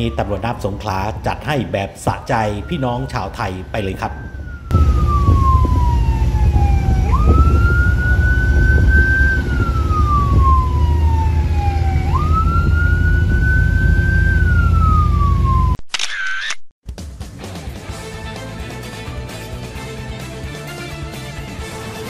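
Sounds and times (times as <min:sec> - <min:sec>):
boat siren wailing: 0:00.0 - 0:01.4, 0:02.0 - 0:15.8
boat engines rumbling: 0:02.4 - 0:15.7.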